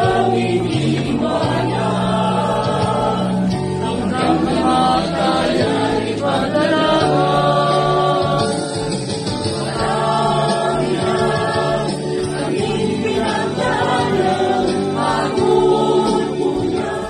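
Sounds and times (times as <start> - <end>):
choir singing a hymn: 0.0 - 17.0.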